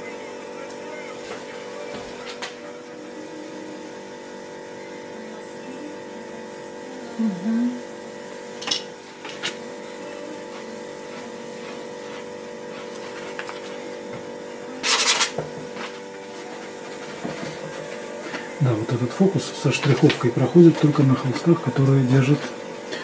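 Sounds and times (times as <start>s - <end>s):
steady electrical hum: 0.0s - 23.0s
palette knife scraping canvas: 14.8s - 15.4s.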